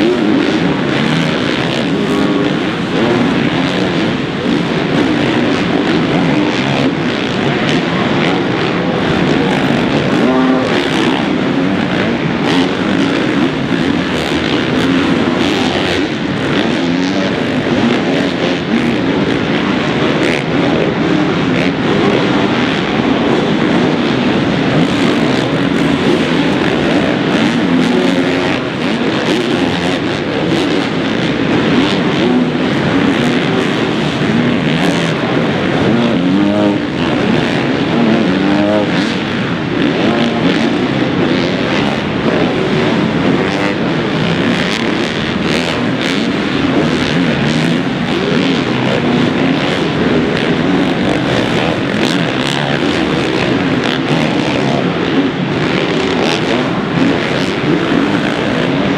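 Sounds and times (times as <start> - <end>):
dirt bike engines revving: 0.0 - 58.9.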